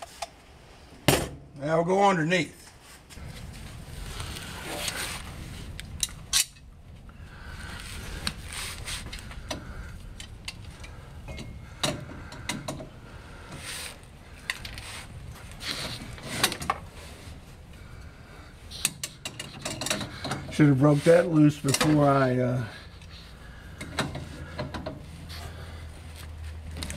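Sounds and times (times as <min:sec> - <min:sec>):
steady low hum: 0:02.6 - 0:26.9
metallic clicks and knocks: 0:18.8 - 0:20.5.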